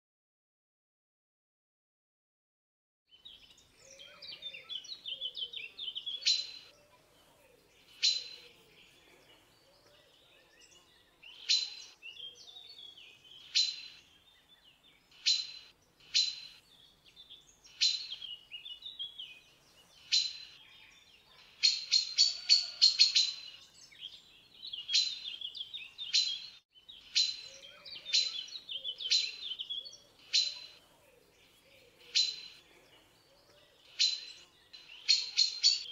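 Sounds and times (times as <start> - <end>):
soft bird twittering: 3.1 - 35.9
magpie chacking calls: 13.4 - 14.0, 15.2 - 16.6, 17.7 - 18.2, 21.4 - 23.6, 26.2 - 29.6, 30.2 - 30.8, 32.0 - 32.6, 33.9 - 35.9.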